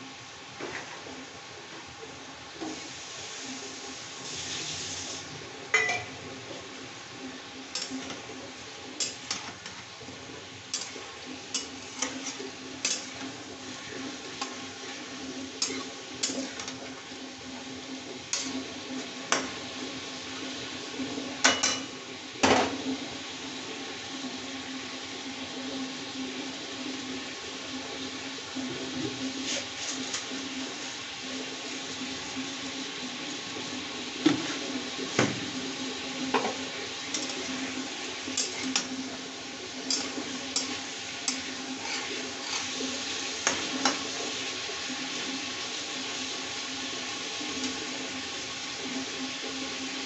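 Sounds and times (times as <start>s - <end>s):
oil sizzling: 0.0s - 50.0s
metal spatula clinking and scraping: 7.7s - 8.2s, 10.7s - 13.3s, 15.6s - 16.8s, 37.1s - 37.5s, 38.4s - 38.9s, 39.9s - 42.7s.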